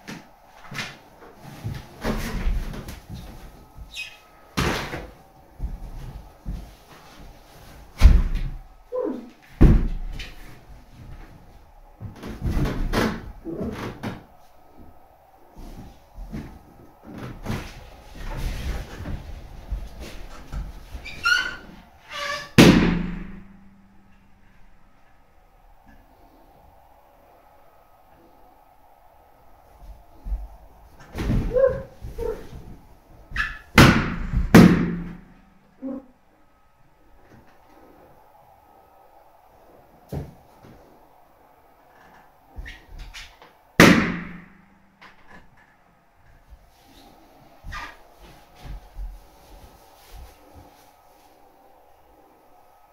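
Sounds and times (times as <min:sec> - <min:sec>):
balloons squeaking and thudding: 0:15.8 - 0:23.4
balloon bursting bang: 0:22.6 - 0:23.6, 0:33.8 - 0:35.2, 0:43.8 - 0:44.5.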